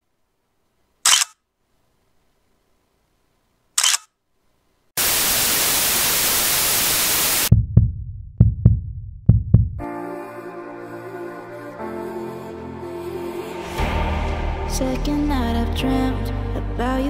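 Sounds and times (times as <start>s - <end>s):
sharp click: 1.1s - 1.4s, 3.8s - 4.1s
white-noise static: 1.7s - 7.5s
deep thumps: 7.5s - 9.8s.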